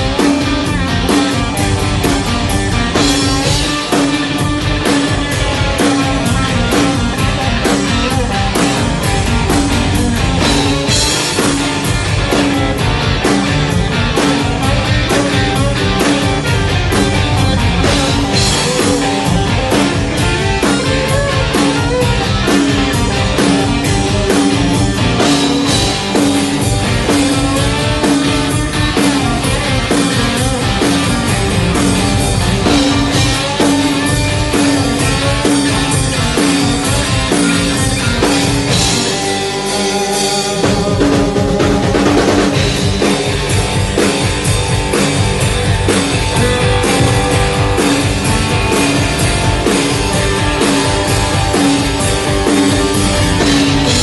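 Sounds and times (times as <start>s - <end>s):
bass: 0.0s - 54.0s
drum kit: 0.0s - 54.0s
electric guitars: 0.0s - 54.0s.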